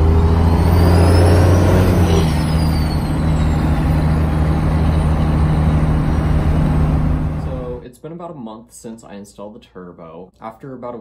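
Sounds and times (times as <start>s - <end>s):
diesel engine pulling under load: 0.0s - 7.8s
turbo whistle: 0.4s - 6.2s.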